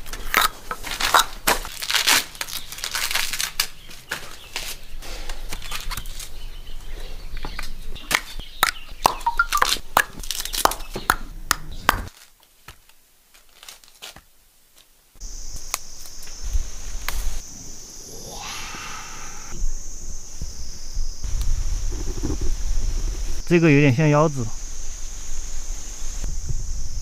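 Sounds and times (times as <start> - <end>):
bamboo husk crackling and tearing: 0.0 - 6.5, 9.5 - 10.8, 12.1 - 16.4.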